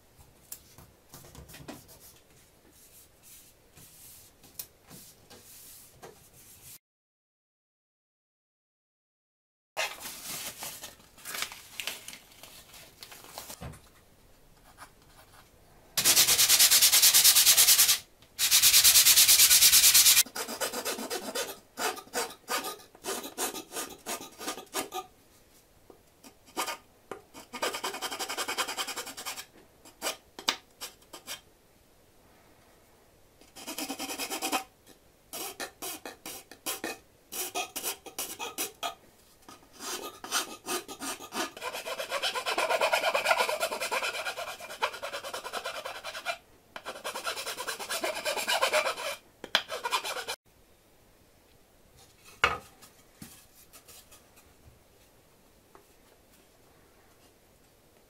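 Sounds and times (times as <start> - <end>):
file rasping in wood: 16.0 - 25.1, 39.8 - 50.4.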